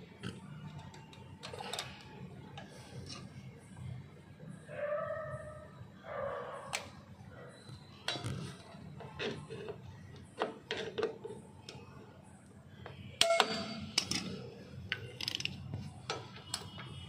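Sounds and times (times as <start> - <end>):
metal tools and springs clinking: 13.2 - 14.5.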